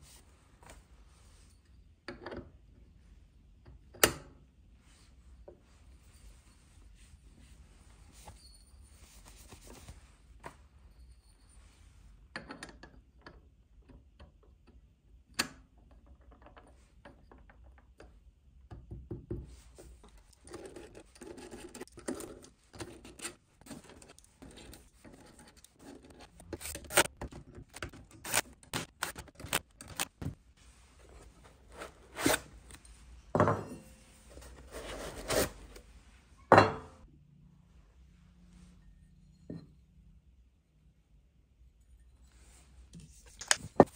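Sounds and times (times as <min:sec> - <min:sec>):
rubbing and scraping: 0:33.9 - 0:35.9.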